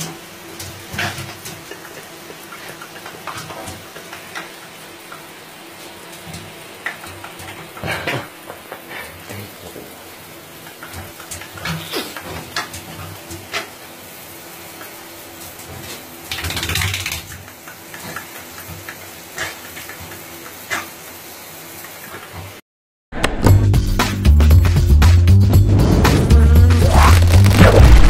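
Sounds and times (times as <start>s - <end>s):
shower water running into bathtub: 0.0s - 22.6s
brief louder noises: 25.7s - 28.0s.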